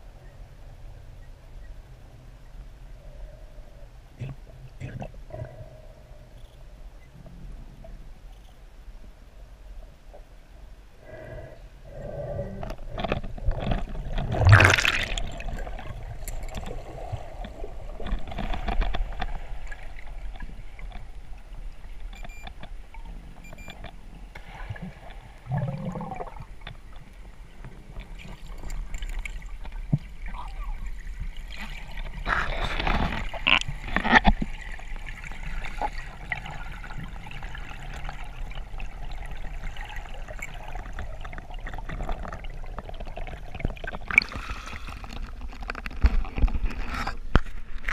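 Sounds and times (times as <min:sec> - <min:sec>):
muffled underwater water wash: 0:00.0 - 0:47.9
water gurgling and bubbling: 0:12.0 - 0:21.5, 0:24.4 - 0:26.6, 0:28.0 - 0:46.6.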